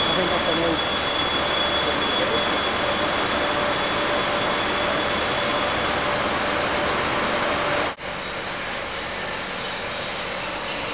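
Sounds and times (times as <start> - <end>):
warehouse machinery hiss: 0.0 - 8.8.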